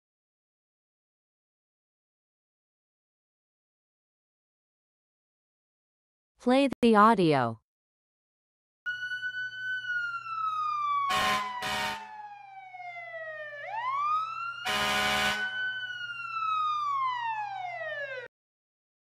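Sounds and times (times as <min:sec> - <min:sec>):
fire truck siren wailing: 0:08.9 - 0:18.3
horn blasts: 0:11.1 - 0:12.1, 0:14.6 - 0:15.6.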